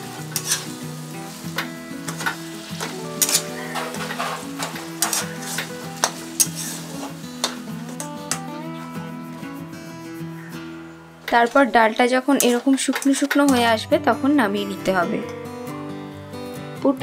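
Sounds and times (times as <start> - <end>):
oil sizzling: 0.0 - 16.5
metal spatula scraping a pan: 0.1 - 8.5, 12.3 - 13.6.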